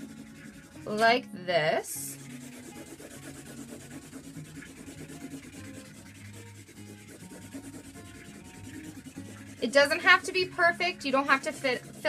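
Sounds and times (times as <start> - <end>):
marker scribbling on paper: 0.0 - 1.2, 2.0 - 12.0.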